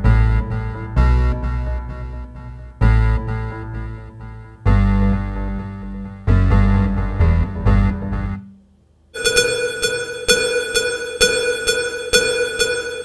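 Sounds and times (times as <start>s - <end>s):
deep synth bass notes: 0.0s - 8.5s.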